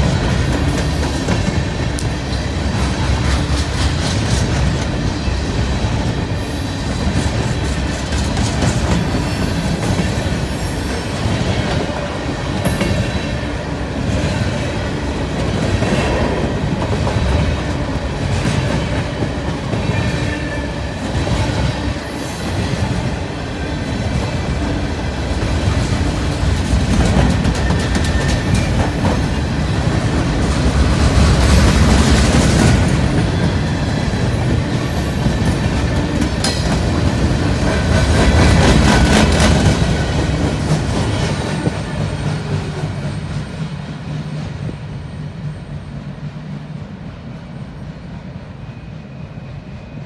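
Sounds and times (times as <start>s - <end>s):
train wheels clattering over rail joints: 0.0s - 5.2s, 25.3s - 43.9s.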